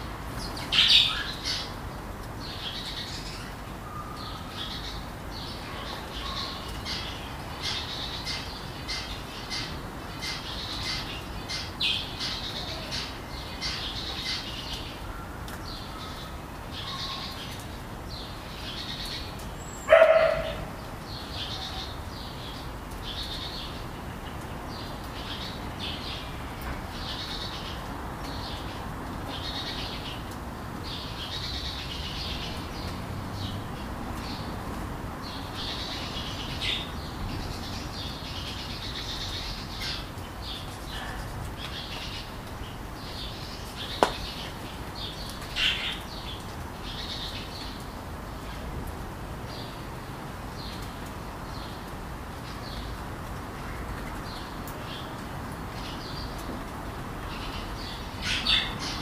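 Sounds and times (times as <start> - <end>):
dog bark: 19.9 - 20.7.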